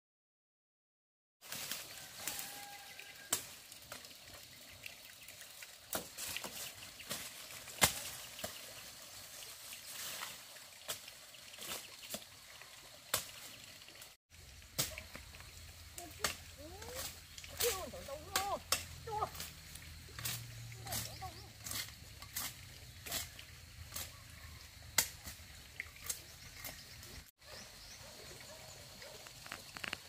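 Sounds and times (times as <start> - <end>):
dry sugarcane crackling and snapping: 1.4 - 4.1, 5.9 - 12.2, 14.6 - 27.2, 29.2 - 30.0
light hiss: 13.1 - 30.0.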